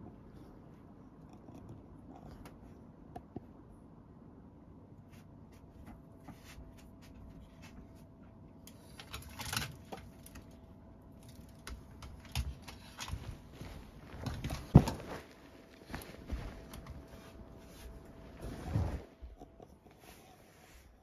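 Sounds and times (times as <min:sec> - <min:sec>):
bedding rustling and thumps: 0:11.7 - 0:19.4.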